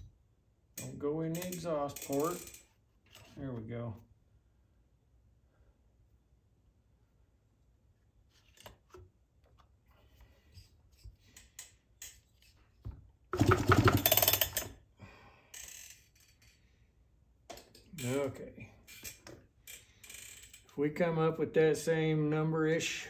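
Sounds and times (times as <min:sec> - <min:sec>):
tools rattling: 0:13.3 - 0:14.8.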